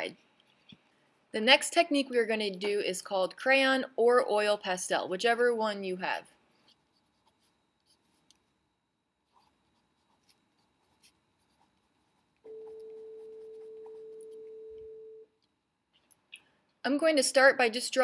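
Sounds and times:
faint scratching and ticking: 0:00.0 - 0:01.4, 0:06.0 - 0:16.8.

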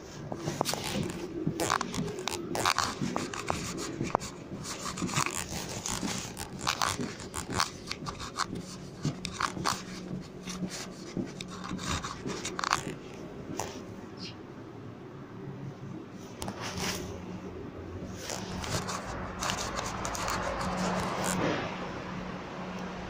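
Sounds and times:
footsteps in train car: 0:00.0 - 0:14.4
low hum in carriage: 0:00.0 - 0:23.0
irregular clicks: 0:00.6 - 0:13.7.

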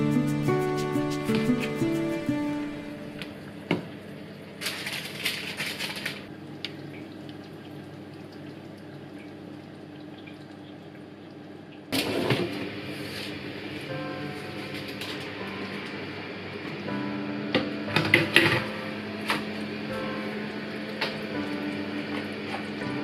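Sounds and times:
parchment paper rustling: 0:04.6 - 0:06.2.

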